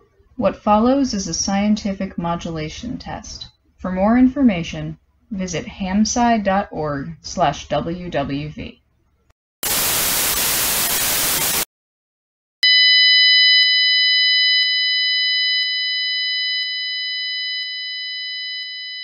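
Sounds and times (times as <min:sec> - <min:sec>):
white noise hiss: 0:09.6 - 0:11.6.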